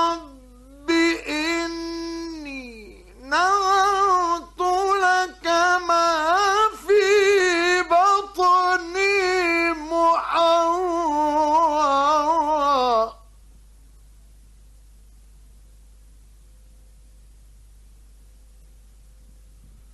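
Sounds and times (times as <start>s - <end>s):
man reciting melodically: 0.0s - 13.3s.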